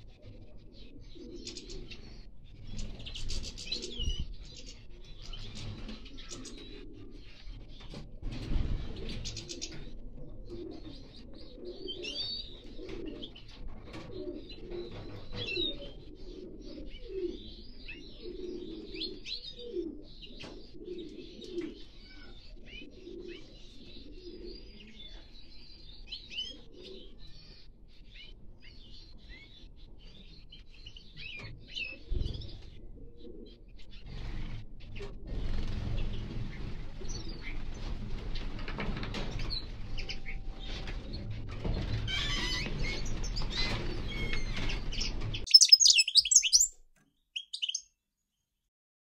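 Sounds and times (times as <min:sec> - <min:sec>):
finches chirping and twittering: 0:45.5 - 0:46.7, 0:47.4 - 0:47.8
low repeated bird call: 0:45.5 - 0:46.7, 0:47.4 - 0:47.8.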